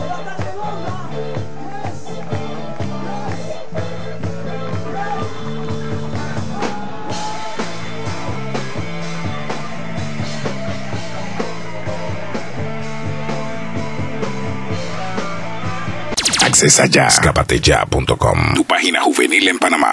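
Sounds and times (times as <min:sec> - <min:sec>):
live rock band playing: 0:07.5 - 0:16.2.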